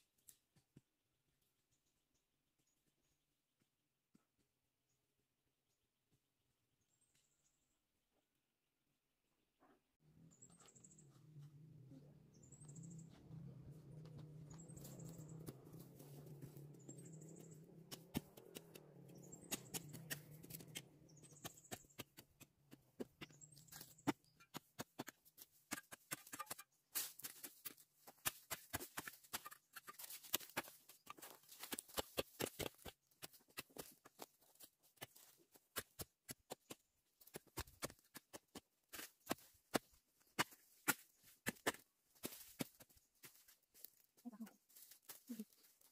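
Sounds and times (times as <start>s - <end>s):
faint low hum: 10.2s - 17.8s
hoe chopping and scraping soil: 14.7s - 43.6s.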